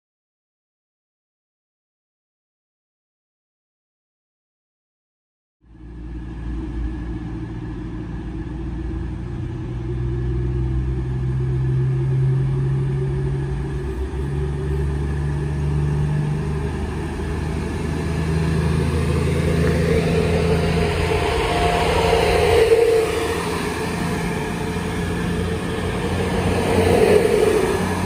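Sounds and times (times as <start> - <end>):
diesel train engines droning: 5.7 - 28.0
train wheels on rails: 7.3 - 28.0.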